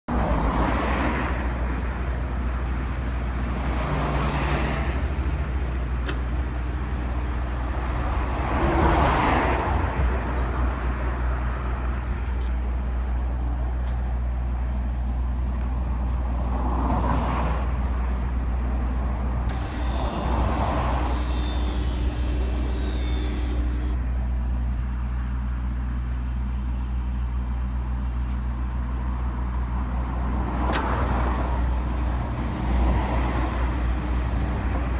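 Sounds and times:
traffic hum: 0.1 - 34.9
vehicles swishing past: 7.8 - 12.0
electric motor whirring: 19.5 - 24.0.

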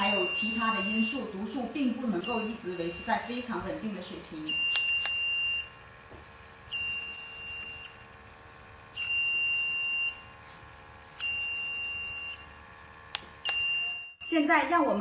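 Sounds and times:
detector alarm beeping: 0.0 - 3.6, 4.4 - 5.8, 6.7 - 8.2, 8.9 - 10.4, 11.2 - 12.6, 13.4 - 14.3.

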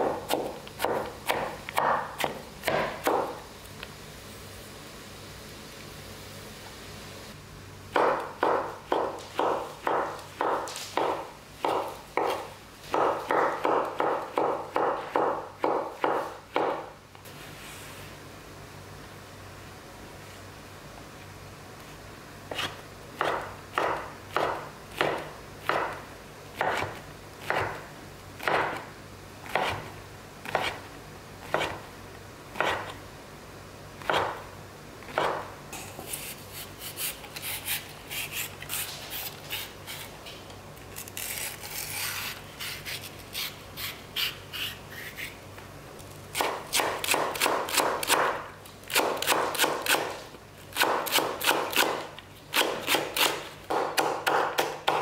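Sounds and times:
knife chopping on wooden board: 0.0 - 3.4, 7.9 - 16.9, 22.5 - 26.0, 26.6 - 27.8, 28.4 - 28.8, 29.5 - 29.9, 30.5 - 30.8, 31.5 - 31.8, 32.6 - 32.9, 34.0 - 34.4, 35.1 - 35.5, 46.4 - 50.1, 50.8 - 55.0.

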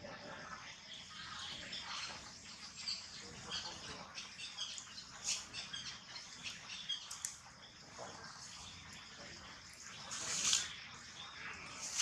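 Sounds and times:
high chirps and squeaks: 1.2 - 7.8.

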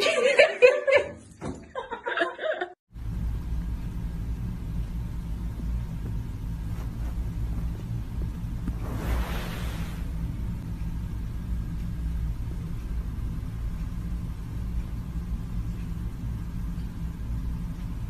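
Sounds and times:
steady low rumble: 2.9 - 18.0
soft hiss: 6.0 - 10.9.

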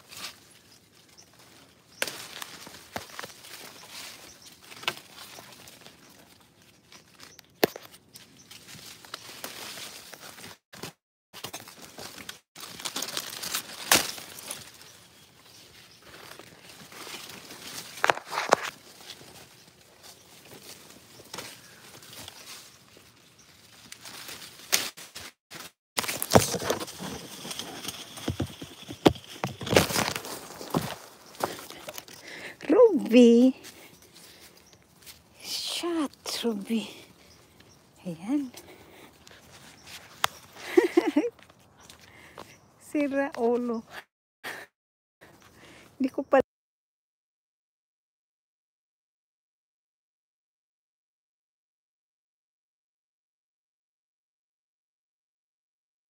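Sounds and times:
leaves and twigs rustling: 0.0 - 43.8
phone brushing through plants: 16.0 - 21.4, 24.0 - 32.2, 39.4 - 40.6
footsteps: 25.0 - 32.2.

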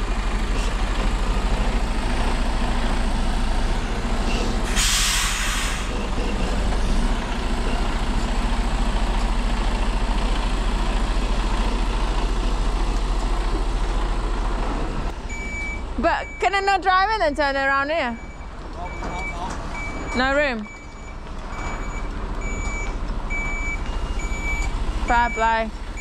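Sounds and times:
lorry diesel engine running: 0.0 - 26.0
air-brake hiss: 4.6 - 6.1.

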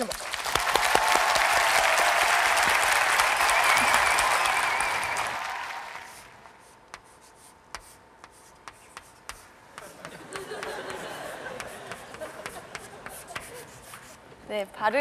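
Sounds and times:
audience applauding: 0.0 - 6.4
chalk tapping on chalkboard: 6.1 - 14.2.

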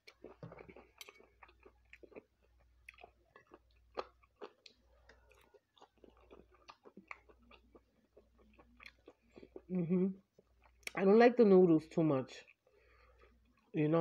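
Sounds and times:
person chewing food: 0.0 - 11.0, 12.4 - 13.8.

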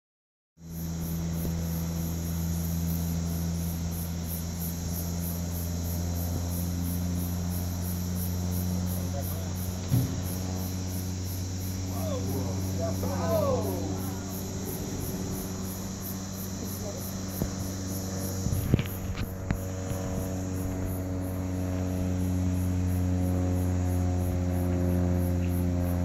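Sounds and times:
insects chirping trill: 0.6 - 26.0
steady low hum: 0.6 - 26.0
brief thump: 9.8 - 10.4.

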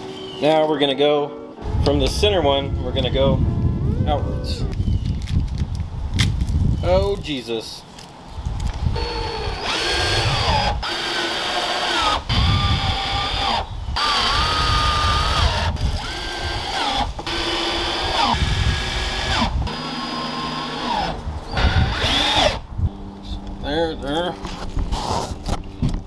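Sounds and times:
cordless drill motor whine: 8.9 - 23.1.

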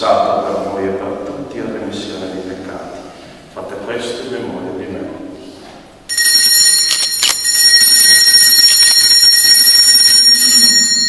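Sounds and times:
altar bells ringing: 6.1 - 11.0.

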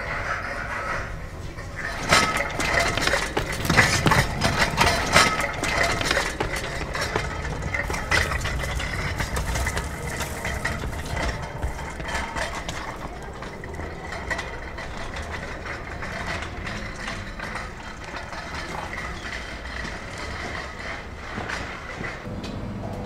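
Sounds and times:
engine rumbling: 0.0 - 23.0
clattering knocks: 1.6 - 22.3.

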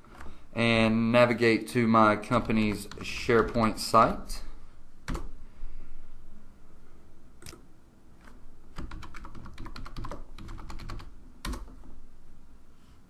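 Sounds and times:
keyboard typing: 2.4 - 3.8, 5.0 - 5.4, 8.2 - 11.9.

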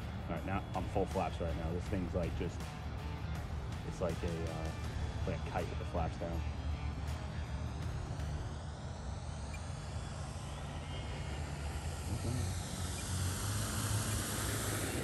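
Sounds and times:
model plane motor whooshing: 4.7 - 15.0.

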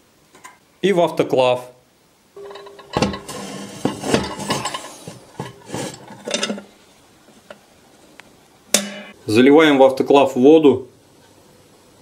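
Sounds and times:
metal rack clanking against pot: 2.4 - 6.7.

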